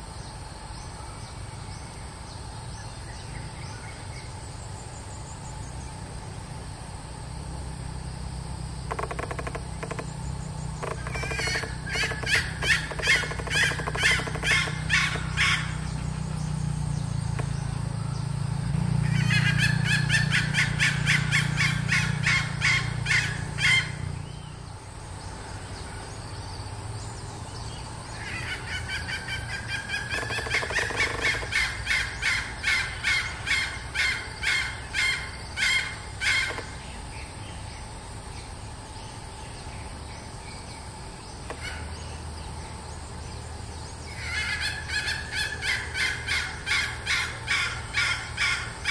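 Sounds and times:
hen clucking rapidly: 10.8 - 15.7.

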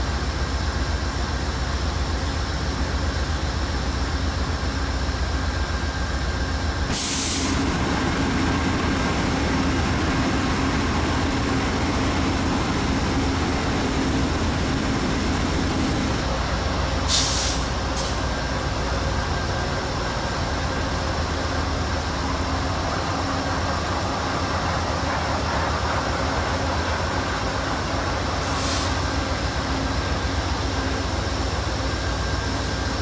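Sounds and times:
diesel locomotives idling: 0.0 - 33.0
air hisses: 17.1 - 18.2.

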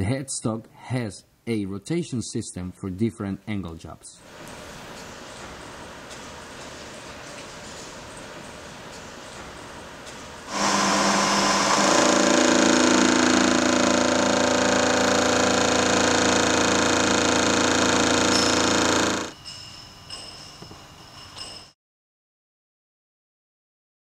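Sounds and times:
milling machine cutting metal: 10.5 - 19.4.

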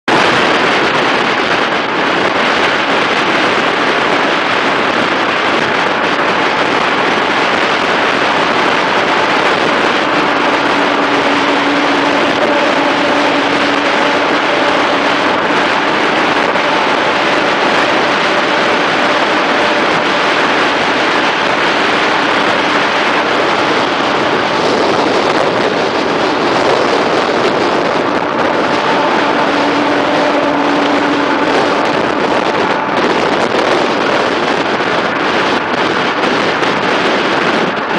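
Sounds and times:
tyre and wind roar: 0.0 - 37.9
faint low drone: 5.7 - 34.6.

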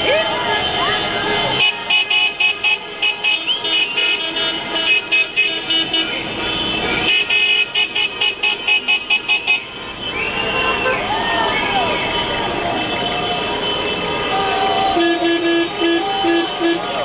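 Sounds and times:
vehicle horns beeping: 0.0 - 17.0
long held horn honk: 13.3 - 17.0.

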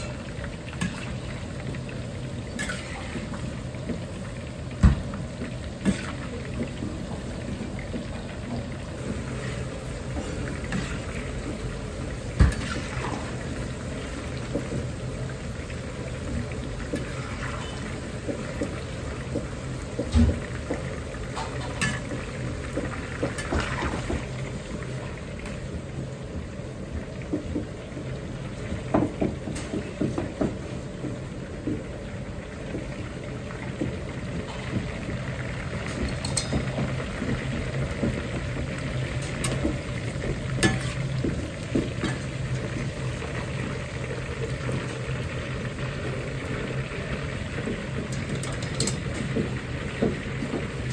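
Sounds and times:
utensil knocking and scraping wok: 0.0 - 13.5, 33.8 - 43.2, 47.5 - 50.9
food sizzling in hot oil: 0.0 - 27.4, 32.7 - 50.9.

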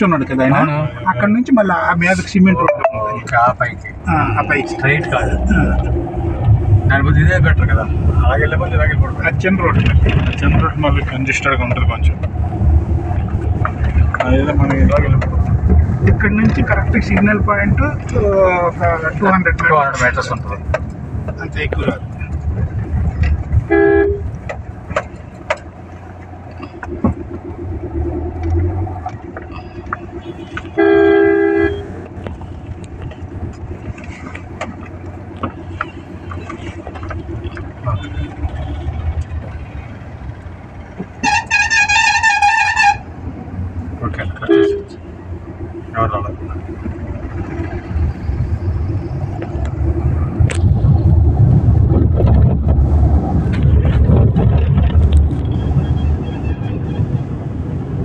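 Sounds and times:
car road and engine noise: 0.0 - 58.0
vehicle horn: 23.7 - 24.3, 30.2 - 32.0, 41.2 - 43.1, 44.4 - 45.0, 55.5 - 57.3
knocks and rattles: 51.8 - 55.6.

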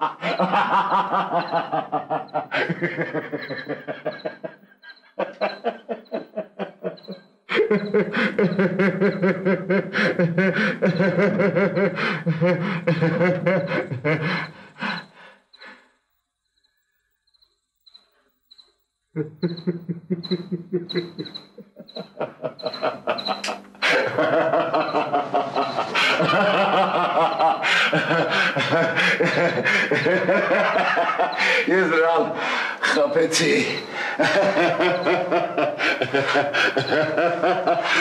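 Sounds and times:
man laughing hard: 0.0 - 15.3, 19.2 - 38.0
faint high chirp: 7.0 - 8.0, 16.4 - 18.8, 19.4 - 23.5.

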